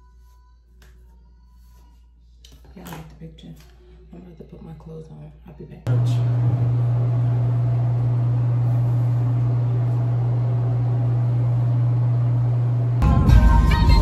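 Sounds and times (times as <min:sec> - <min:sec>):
music with singing: 0:00.0 - 0:04.2, 0:13.0 - 0:14.0
steady low hum: 0:05.9 - 0:13.0.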